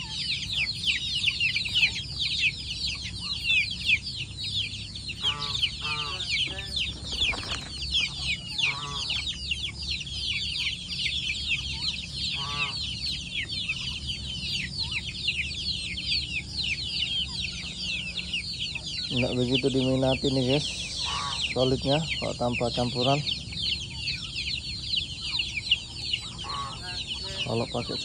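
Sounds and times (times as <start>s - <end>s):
chicks peeping: 0.0s - 28.0s
chicken clucking: 5.1s - 9.8s, 10.4s - 28.0s.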